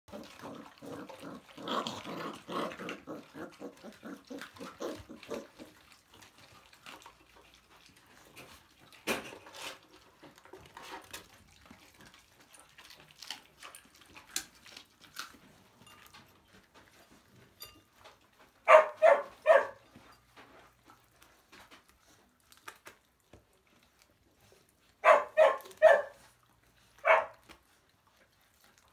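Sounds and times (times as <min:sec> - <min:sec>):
puppies growling: 0:00.1 - 0:28.9
puppies snuffling and chewing: 0:00.1 - 0:28.9
puppy barks: 0:18.6 - 0:19.8, 0:25.0 - 0:26.2, 0:27.0 - 0:27.5.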